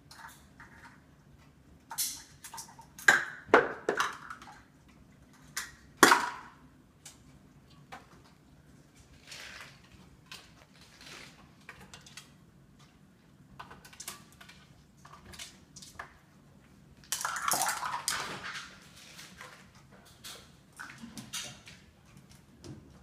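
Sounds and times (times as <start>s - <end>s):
plastic cups clattering: 1.9s - 4.7s, 5.4s - 6.6s, 17.0s - 21.8s.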